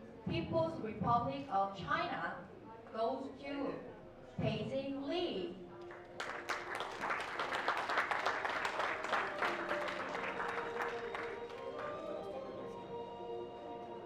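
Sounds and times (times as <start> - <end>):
background music with held notes: 5.0 - 14.0
audience applauding: 5.8 - 12.8.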